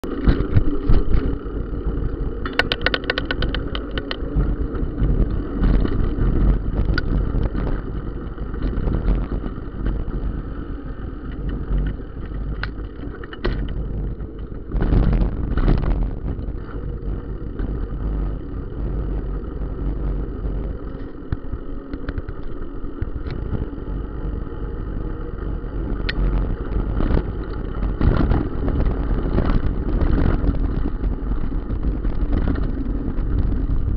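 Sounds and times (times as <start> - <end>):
wind rumbling on microphone: 0.0 - 33.9
rattles and knocks from bumps: 2.0 - 7.8, 11.3 - 16.7.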